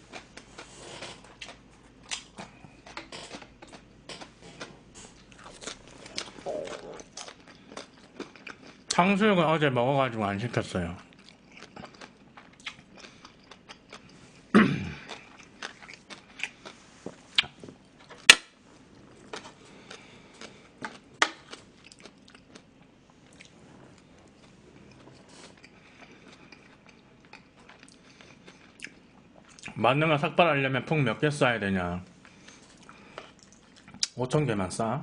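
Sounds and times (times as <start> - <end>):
chewing and mouth noises: 0.0 - 9.0, 10.8 - 18.3, 18.9 - 29.8, 32.2 - 34.2.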